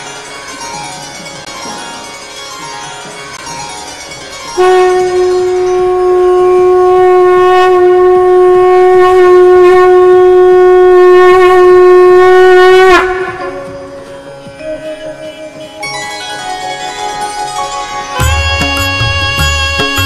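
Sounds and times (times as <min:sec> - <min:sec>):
conch shell blown: 0:04.6 - 0:20.0.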